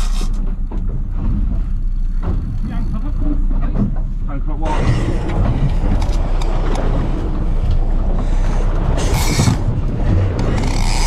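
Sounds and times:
boat engine rumble: 0:00.0 - 0:11.0
water noise: 0:00.0 - 0:11.0
wind buffeting microphone: 0:02.3 - 0:11.0.

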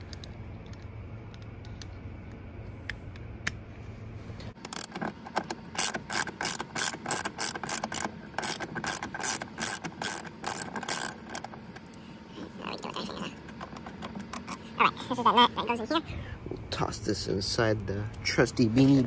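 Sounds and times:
socket ratchet clicking: 0:04.6 - 0:11.9.

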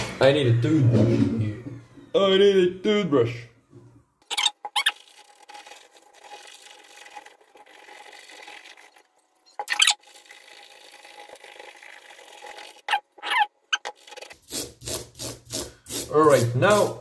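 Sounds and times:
toothbrush scrubbing keyboard keys: 0:04.3 - 0:08.9.

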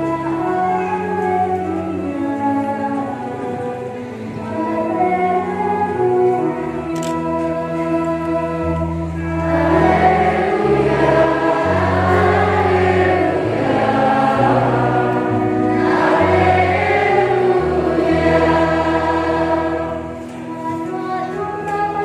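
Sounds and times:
children's choir singing: 0:00.0 - 0:22.0
held keyboard notes: 0:00.0 - 0:22.0
girl singing into a microphone: 0:20.2 - 0:22.0.

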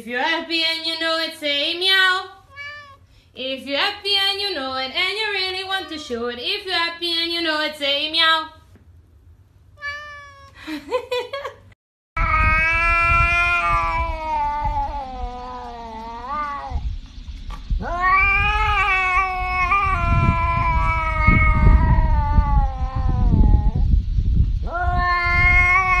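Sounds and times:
cat meowing: 0:02.5 - 0:03.1, 0:05.4 - 0:06.2, 0:09.8 - 0:10.6, 0:12.2 - 0:16.8, 0:17.8 - 0:23.8, 0:24.7 - 0:26.0
low rumbling noise: 0:12.2 - 0:26.0.

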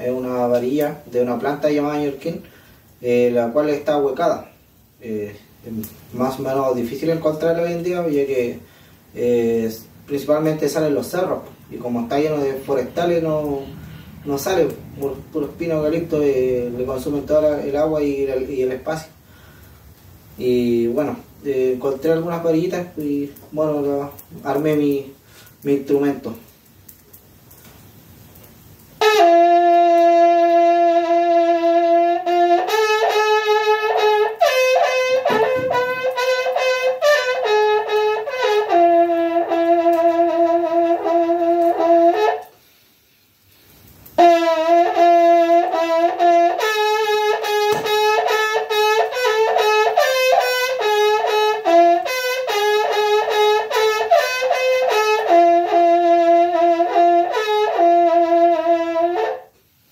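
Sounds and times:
cane trumpet playing held notes: 0:00.0 - 0:02.4, 0:05.8 - 0:08.7, 0:09.7 - 0:19.1, 0:29.0 - 0:42.6, 0:44.1 - 0:59.6.

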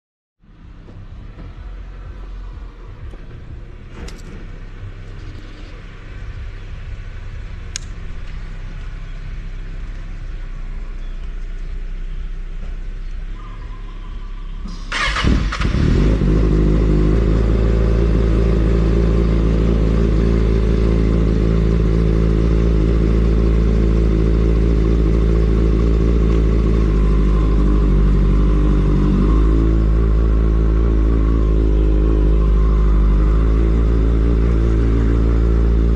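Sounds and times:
low background rumble: 0:00.4 - 0:35.9
motorcycle engine idling: 0:04.5 - 0:35.9
clicks: 0:07.7 - 0:09.0
motorcycle starter cranking: 0:14.7 - 0:16.0.

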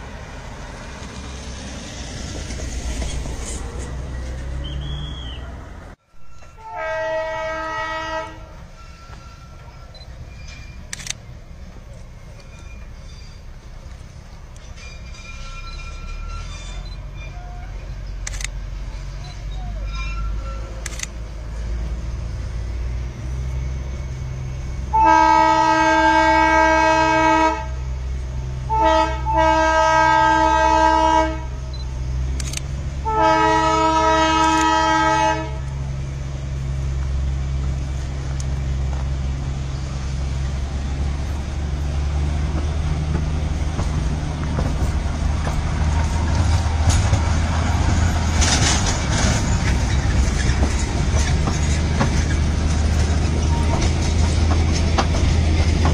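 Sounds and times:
locomotive running noise: 0:00.0 - 0:55.9
toy train horn blasts: 0:06.2 - 0:09.8, 0:24.9 - 0:27.8, 0:28.7 - 0:31.6, 0:33.0 - 0:35.7.

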